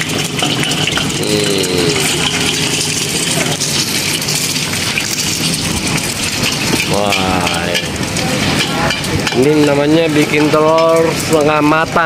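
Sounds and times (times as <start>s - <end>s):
egg sizzling in oil: 0.0s - 12.0s.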